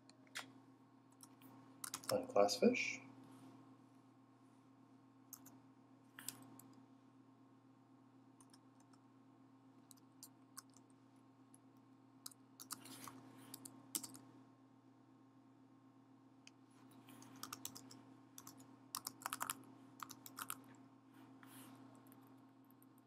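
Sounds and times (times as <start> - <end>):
low steady hum: 0.0 - 23.0
keyboard keystrokes: 1.2 - 2.1, 13.5 - 14.2, 17.3 - 20.6.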